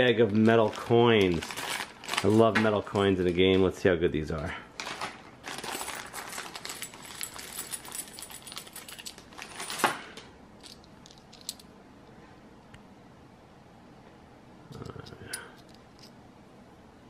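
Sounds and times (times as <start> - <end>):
plastic bag crinkling: 0.0 - 3.6, 4.8 - 9.8
metal coins clinking: 5.5 - 11.7.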